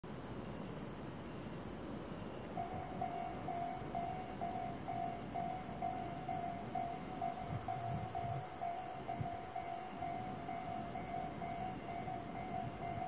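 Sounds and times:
crickets chirping: 0:00.1 - 0:13.0.

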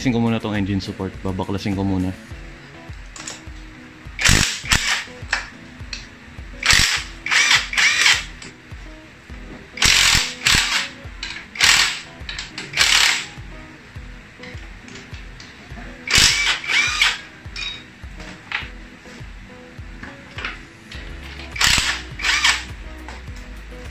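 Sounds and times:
impact wrench bursts: 0:04.2 - 0:06.0, 0:06.6 - 0:08.5, 0:09.8 - 0:13.4, 0:16.0 - 0:17.8, 0:21.3 - 0:22.8.

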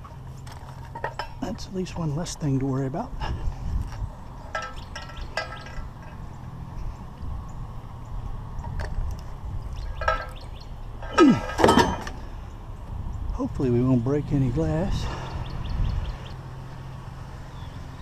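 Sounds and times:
metal clatter and scrape: 0:00.0 - 0:01.7, 0:03.5 - 0:07.0, 0:09.8 - 0:12.3
scrap metal and glass clinking: 0:00.5 - 0:01.4, 0:04.5 - 0:06.2, 0:09.9 - 0:10.4, 0:11.0 - 0:12.2.

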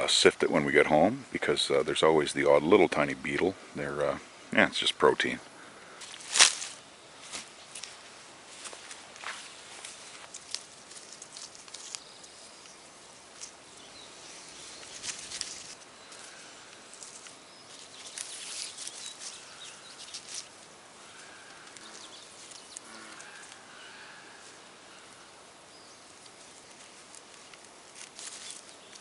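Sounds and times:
leaves rustling and crackling: 0:00.0 - 0:29.0.

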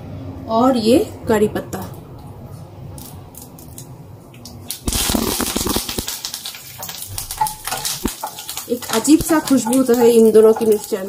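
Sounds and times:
oil sizzling and spattering: 0:02.9 - 0:11.0.

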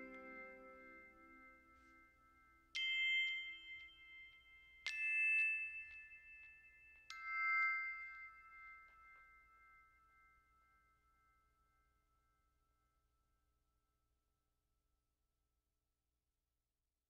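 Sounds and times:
background music: 0:00.0 - 0:01.8
bell-like chime notes: 0:00.0 - 0:11.5.

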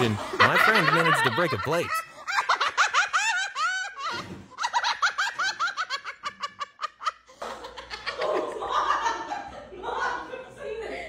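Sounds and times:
person giggling: 0:00.0 - 0:04.4.

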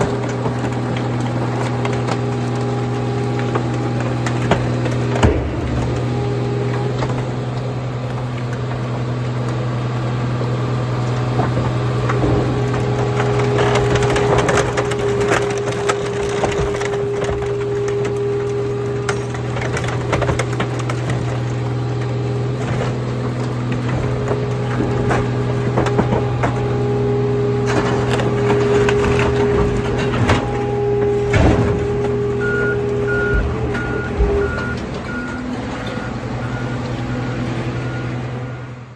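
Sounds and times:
metal cracking and crunching: 0:00.0 - 0:37.6
engine hum: 0:00.0 - 0:38.9
hydraulic whine: 0:11.4 - 0:38.9
reversing alarm beeping: 0:31.8 - 0:38.8.

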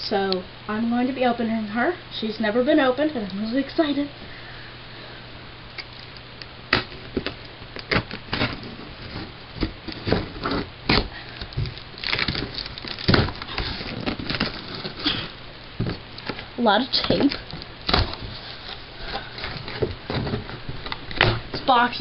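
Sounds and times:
tape tearing: 0:05.8 - 0:21.5.

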